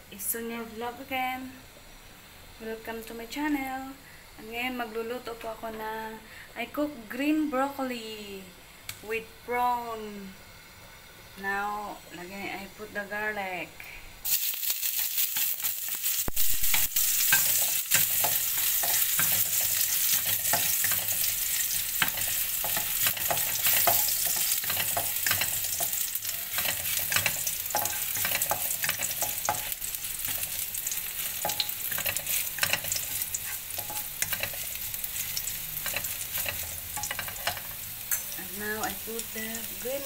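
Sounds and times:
garlic sizzling in hot oil: 0:00.0 - 0:40.0
spatula scraping and tapping pan: 0:16.6 - 0:38.4.

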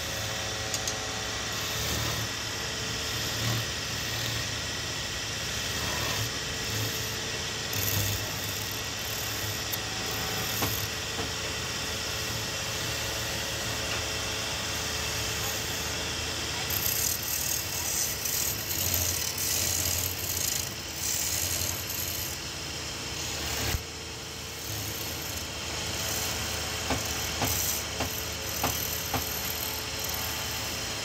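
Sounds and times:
wood lathe motor running: 0:00.0 - 0:31.0
chisel scraping spinning wood: 0:00.7 - 0:02.3, 0:05.7 - 0:11.0, 0:16.6 - 0:22.4, 0:24.6 - 0:30.8.

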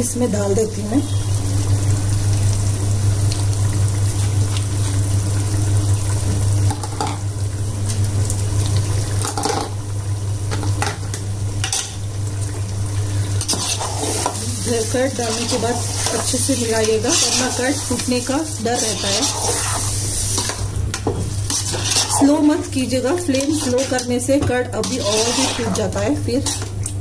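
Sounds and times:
low hum: 0:00.0 - 0:06.6
curry simmering in a pot: 0:01.1 - 0:27.0.

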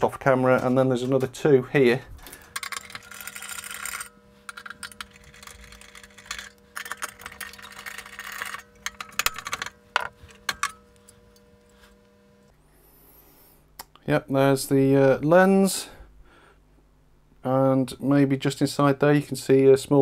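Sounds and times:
faint steady hum: 0:00.0 - 0:20.0
rustling of cables and plastic parts: 0:02.1 - 0:11.0.

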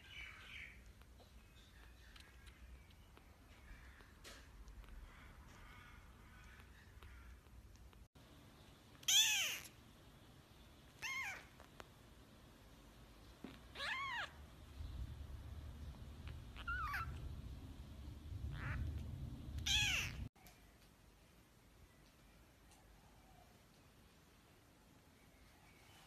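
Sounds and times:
kitten mewing: 0:09.0 - 0:09.8, 0:11.0 - 0:11.6, 0:13.7 - 0:14.4, 0:16.2 - 0:17.2, 0:18.5 - 0:19.0, 0:19.6 - 0:20.3
low rumbling noise: 0:14.4 - 0:20.3.

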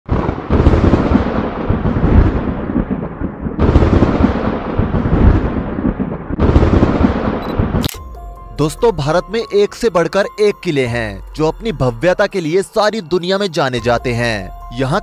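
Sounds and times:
thunder claps and rumble: 0:00.1 - 0:07.8.

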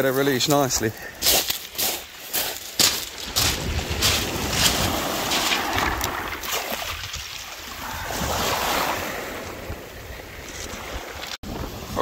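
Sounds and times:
sea waves washing onto beach: 0:02.8 - 0:12.0
wind buffeting microphone: 0:03.2 - 0:12.0.

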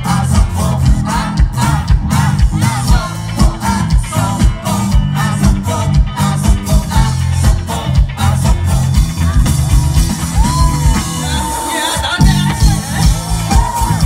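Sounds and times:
bass line: 0:00.0 - 0:14.0
drums beating: 0:00.0 - 0:14.0
man singing into microphone: 0:11.1 - 0:14.0.

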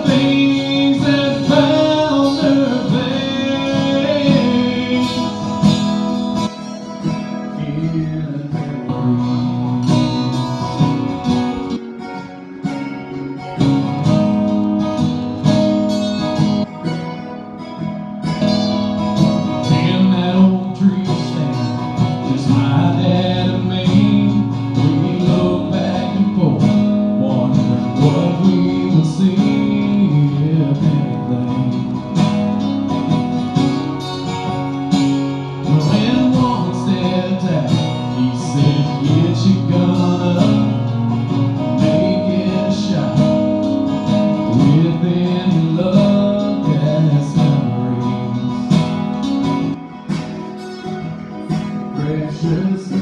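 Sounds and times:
person singing: 0:00.0 - 0:10.7, 0:19.4 - 0:32.6, 0:35.3 - 0:50.0, 0:50.6 - 0:53.0
acoustic guitars strummed: 0:00.0 - 0:53.0.

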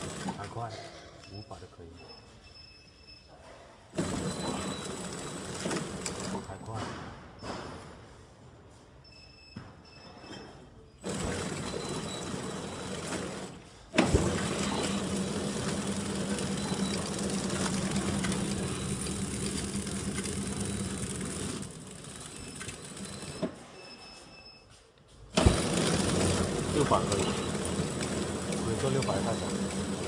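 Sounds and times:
packing machine clattering: 0:00.0 - 0:00.7, 0:04.0 - 0:06.8, 0:11.0 - 0:23.6, 0:25.3 - 0:30.0.

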